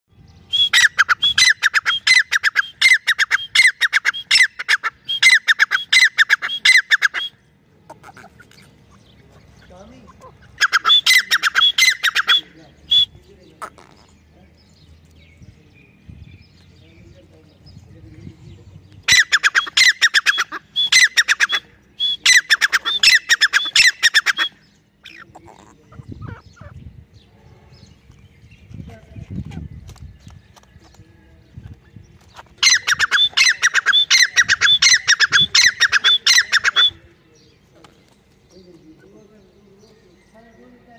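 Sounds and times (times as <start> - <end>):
francolin calling: 0.2 - 14.4, 19.0 - 27.0, 32.3 - 37.2.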